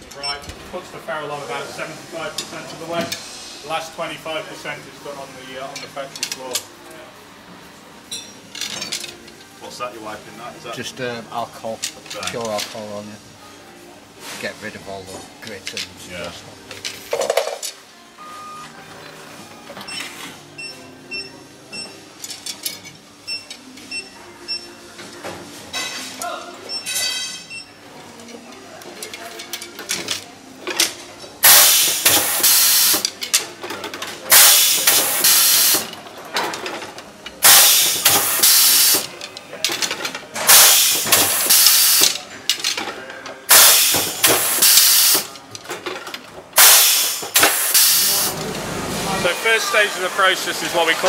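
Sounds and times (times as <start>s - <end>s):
compressed air hissing: 31.4s - 33.0s, 34.3s - 35.9s, 37.4s - 39.1s, 40.5s - 42.2s, 43.5s - 45.3s, 46.6s - 48.4s.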